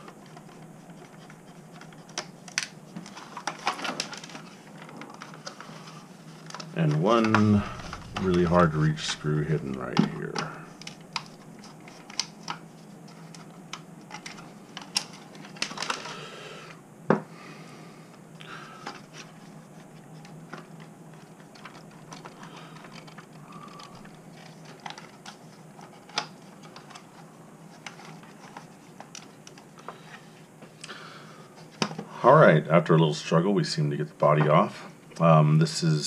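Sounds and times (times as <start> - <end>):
scraping rustle: 3.1 - 10.4.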